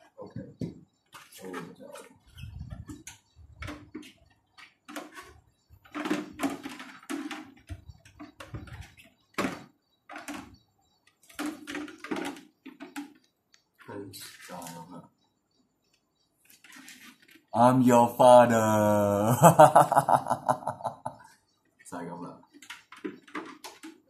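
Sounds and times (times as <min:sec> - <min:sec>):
plastic helmet rubbing and scraping: 0:01.0 - 0:13.3, 0:16.5 - 0:17.5.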